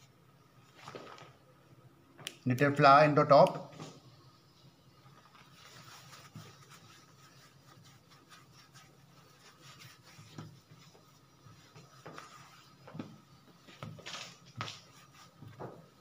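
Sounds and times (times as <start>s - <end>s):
hands rubbing bread dough: 3.8s - 16.0s.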